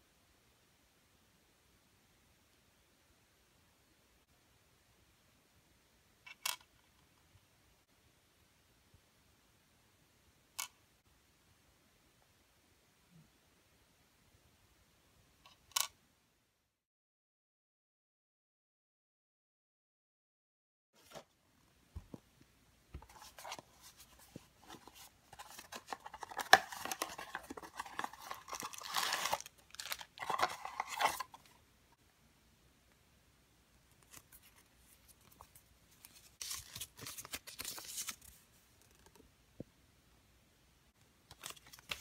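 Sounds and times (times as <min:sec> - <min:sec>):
cardboard and paper rustling and tearing: 0:23.1 - 0:31.5, 0:35.4 - 0:38.4.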